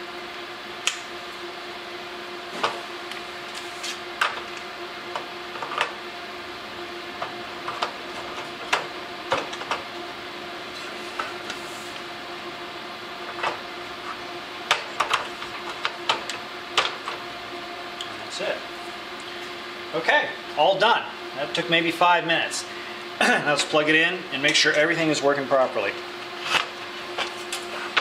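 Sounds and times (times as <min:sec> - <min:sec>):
steady low hum: 0:00.0 - 0:28.0
light tubes clicking into fixture: 0:00.8 - 0:01.1.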